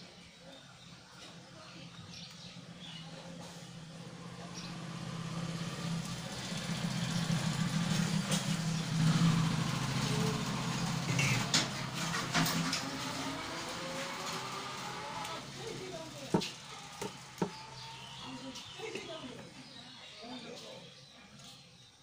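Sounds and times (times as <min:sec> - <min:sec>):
low steady engine hum: 0:00.0 - 0:20.8.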